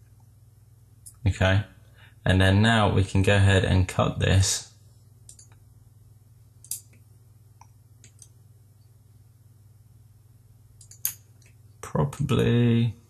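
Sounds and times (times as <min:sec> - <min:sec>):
low background hum: 0:00.0 - 0:13.0
computer mouse clicks: 0:05.3 - 0:05.6, 0:06.6 - 0:07.0, 0:07.6 - 0:08.4, 0:10.8 - 0:11.6.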